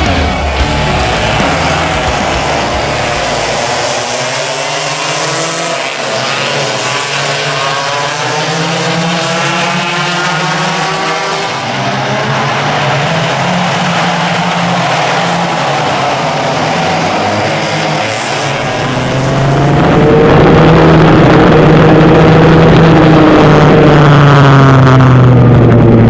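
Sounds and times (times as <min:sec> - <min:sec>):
karts running past: 0:00.0 - 0:26.0
two-stroke kart engines revving: 0:00.0 - 0:26.0.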